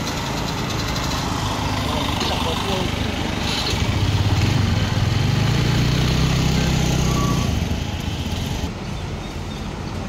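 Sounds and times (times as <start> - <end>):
small engine droning: 0.0 - 8.7.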